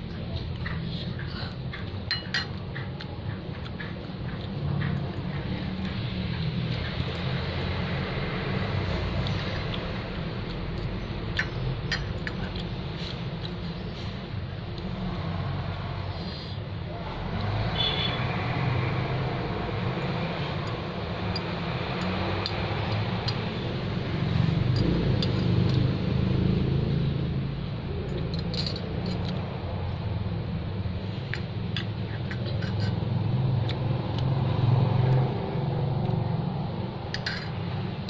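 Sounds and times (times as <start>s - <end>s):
cutlery clinking on glass plate: 2.1s - 2.6s.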